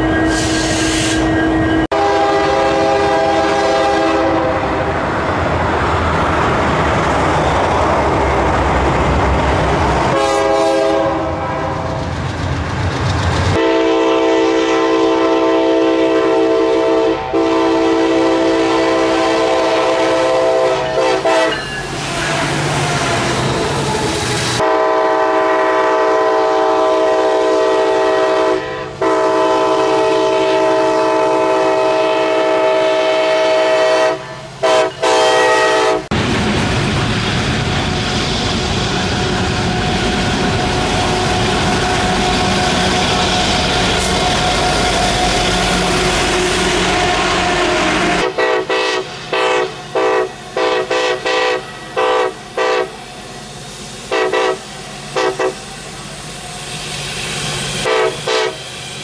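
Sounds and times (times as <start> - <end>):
locomotive air horns: 0.0 - 4.9, 10.1 - 12.0, 13.5 - 36.1, 41.0 - 53.1, 54.1 - 56.2, 57.5 - 58.7
train rumbling and rail clatter: 0.0 - 59.0.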